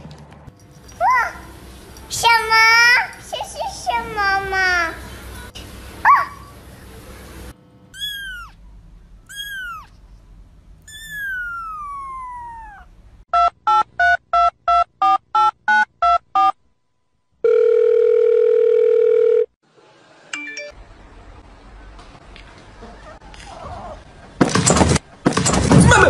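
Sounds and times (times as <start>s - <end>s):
kitten meowing: 8.0s - 8.6s, 9.3s - 9.9s, 10.8s - 12.9s
steady telephone tone: 17.4s - 19.5s.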